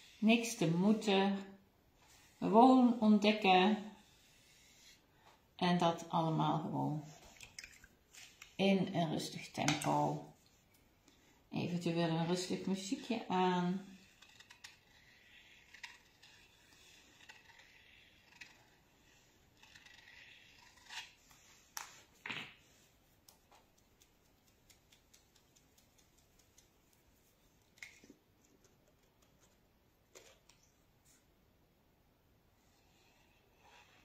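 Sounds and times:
paintbrush scratching on paper: 0.0s - 1.2s, 2.0s - 5.0s, 11.8s - 22.0s, 22.6s - 27.7s.

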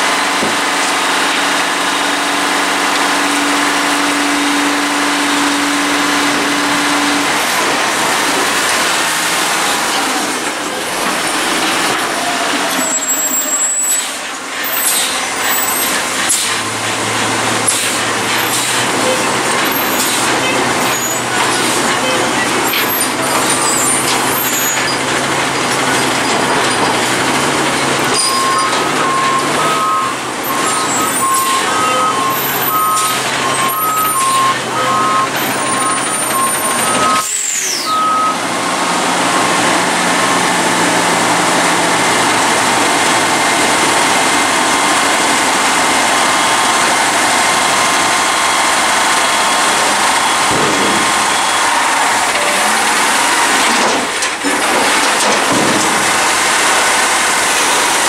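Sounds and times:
hydraulic forks lifting dumpster: 0.0s - 58.0s
truck engine running: 0.0s - 58.0s
two-tone reversing alarm beeping: 28.1s - 38.4s, 46.2s - 53.6s.

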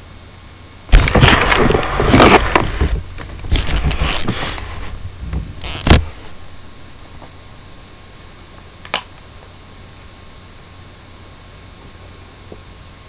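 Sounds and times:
camera handling noise: 0.9s - 5.0s, 5.6s - 6.3s.

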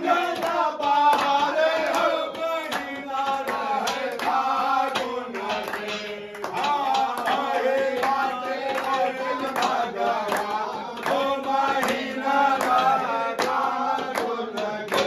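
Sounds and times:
hand clapping in time: 0.0s - 15.0s
men singing folk song: 0.0s - 15.0s.

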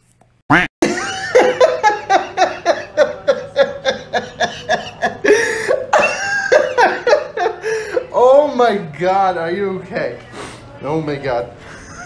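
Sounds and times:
person laughing hard: 0.8s - 7.8s.

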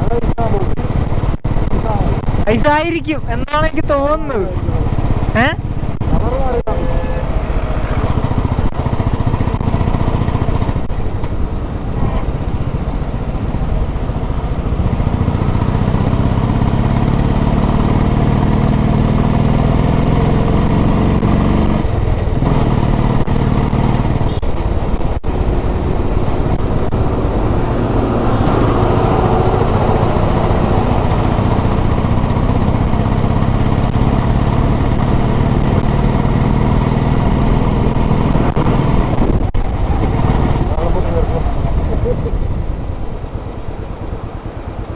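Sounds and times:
wind rushing over microphone: 37.1s - 41.8s.

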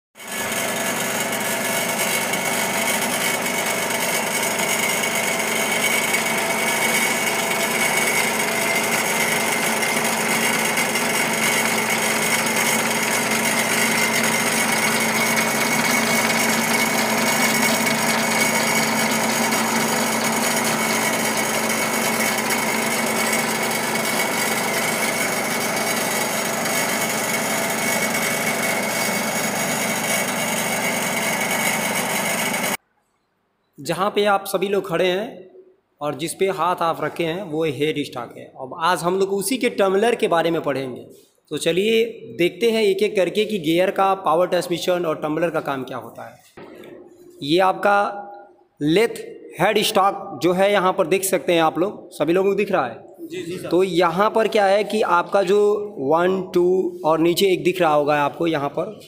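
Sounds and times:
lathe gears whirring: 0.2s - 32.8s.

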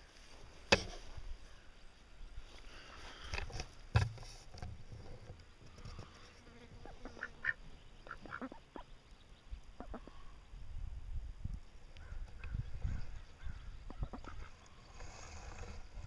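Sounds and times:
ducks quacking: 6.8s - 8.9s, 9.8s - 10.3s, 12.9s - 14.6s.

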